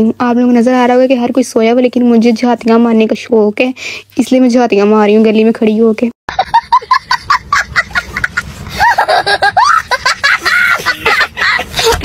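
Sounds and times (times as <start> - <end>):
boy laughing: 6.3 - 12.0.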